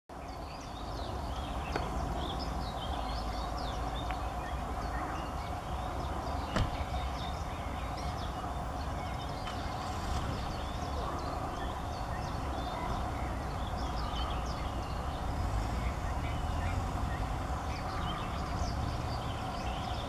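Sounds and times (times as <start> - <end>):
songbirds chirping: 0.1 - 20.0.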